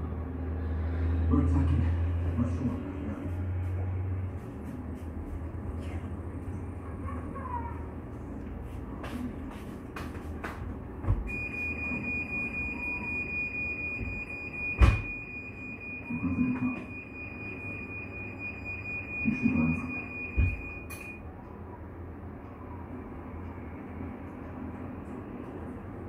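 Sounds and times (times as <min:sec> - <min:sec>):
high-pitched electronic beep: 0:11.3 - 0:21.2.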